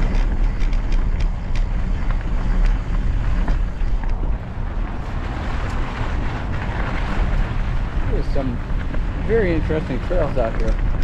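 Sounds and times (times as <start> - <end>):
bike rattling clicks: 0.0 - 4.2
bike tyres crunching gravel: 0.0 - 11.0
wind buffeting microphone: 0.0 - 11.0.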